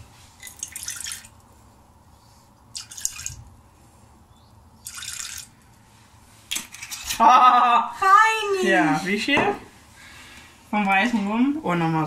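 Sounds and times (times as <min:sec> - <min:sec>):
liquor pouring into cup: 0:04.8 - 0:05.5.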